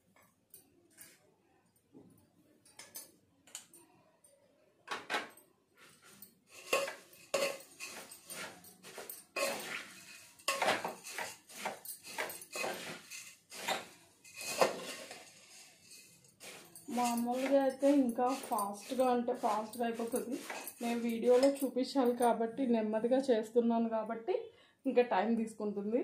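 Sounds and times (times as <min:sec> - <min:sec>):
spoon scraping metal pot: 0:05.8 - 0:21.7.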